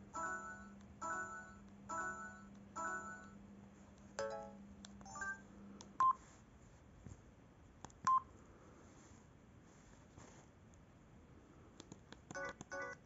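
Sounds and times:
phone keypad tones: 12.3 - 13.0.

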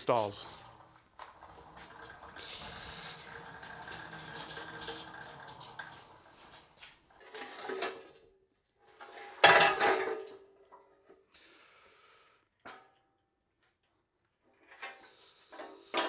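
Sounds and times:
cart rolling on concrete: 0.0 - 8.2.

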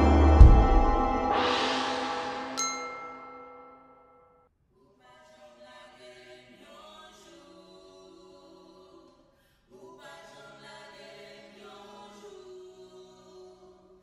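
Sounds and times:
soft held chords: 0.0 - 3.9.

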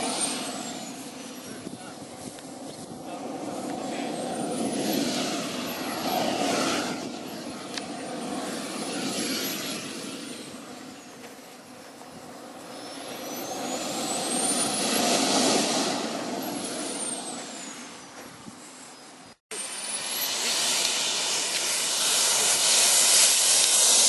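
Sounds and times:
high turbine whine: 0.0 - 24.0
model jet turbine rushing: 0.0 - 24.0.

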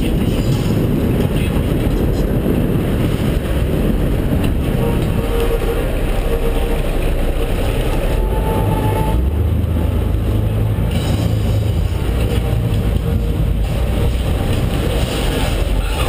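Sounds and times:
boat engine running: 0.0 - 16.0
wind rushing: 0.0 - 16.0.

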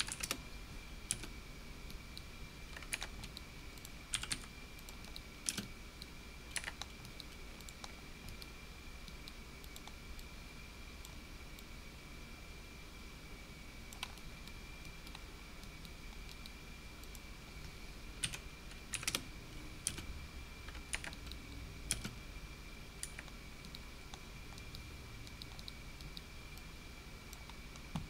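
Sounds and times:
keyboard keys tapping: 0.0 - 0.4, 2.7 - 5.7.

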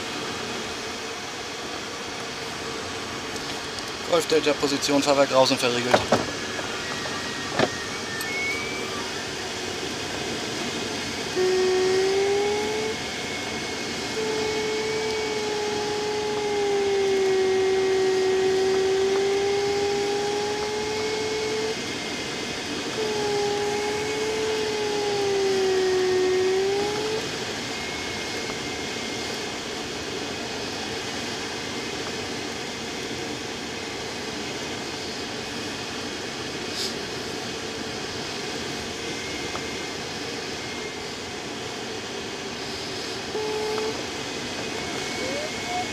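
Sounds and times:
wandering electronic tone: 6.3 - 30.6, 42.7 - 45.9.

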